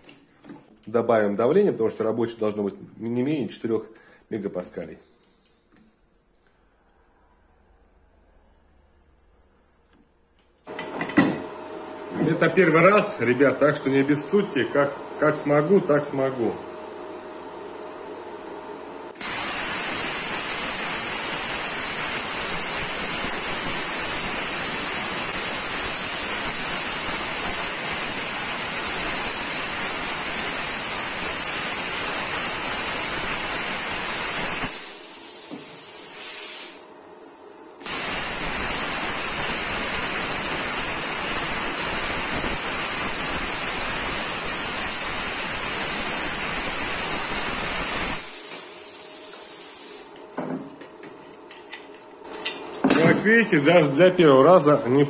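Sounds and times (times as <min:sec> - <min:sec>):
plasma cutter hissing: 0:19.2 - 0:36.8, 0:37.8 - 0:50.1.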